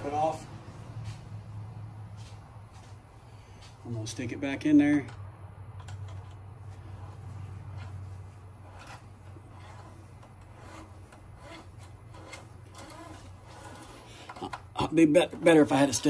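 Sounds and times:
soft scuffs: 0.0s - 3.9s
steady low hum: 0.0s - 16.0s.

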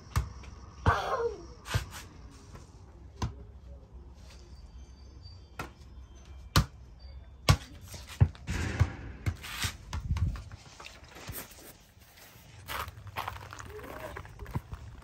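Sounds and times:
ball thudding: 8.4s - 10.6s
wind rumble on microphone: 10.0s - 10.6s.

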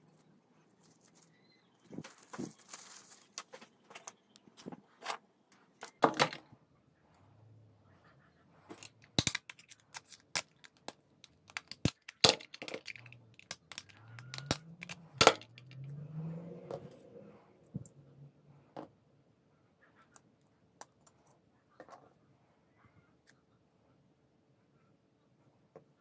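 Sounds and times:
knife prying plastic casing: 8.8s - 15.5s.

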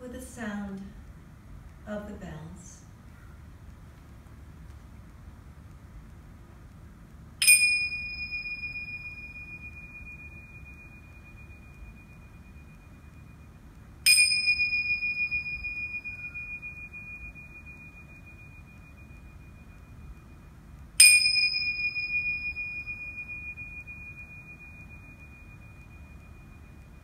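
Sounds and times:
meditation bell ringing: 7.4s - 27.0s.

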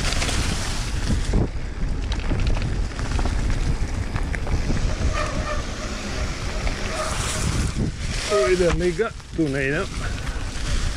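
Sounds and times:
bike rattling over rough ground: 0.0s - 10.9s
wind buffeting microphone: 0.0s - 10.9s.

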